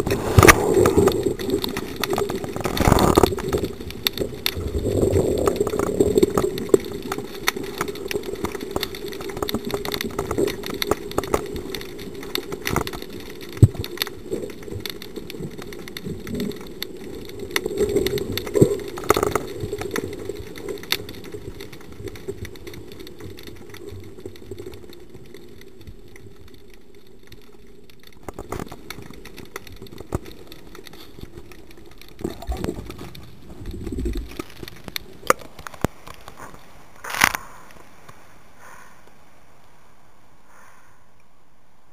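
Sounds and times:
underwater clicks and knocks: 0.0s - 37.8s.

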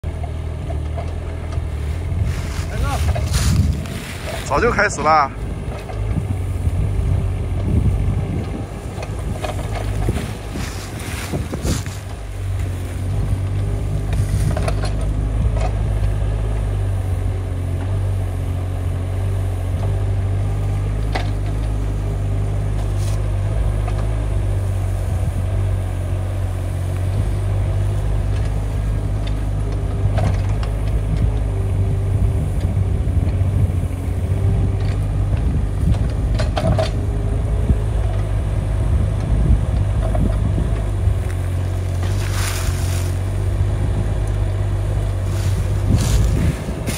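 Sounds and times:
excavator diesel engine: 0.0s - 46.9s
bucket digging soil: 1.8s - 5.0s, 9.2s - 13.1s, 41.6s - 43.5s, 45.0s - 46.9s.

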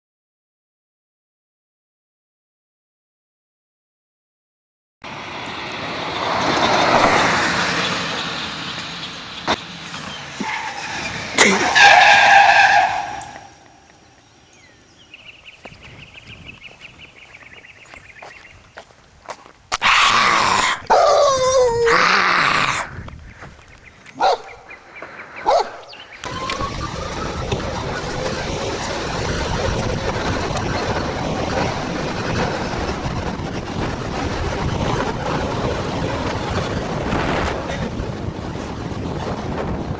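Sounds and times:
golf cart passing: 5.0s - 17.9s, 23.6s - 39.9s
wind rushing over microphone: 14.6s - 39.9s.

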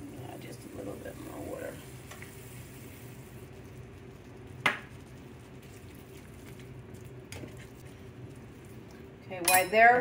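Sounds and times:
vegetables sizzling in a pan: 0.0s - 5.9s
steady low hum: 0.0s - 10.0s.

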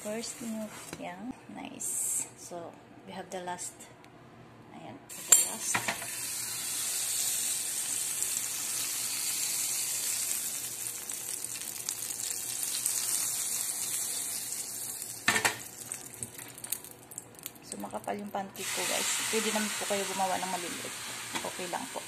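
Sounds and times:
butter sizzling in a frying pan: 5.1s - 17.6s, 18.6s - 22.0s.

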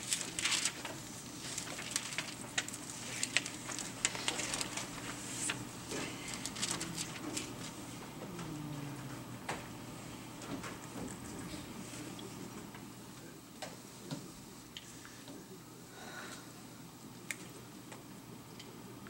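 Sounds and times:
pages rustling and clicking: 0.0s - 5.6s.

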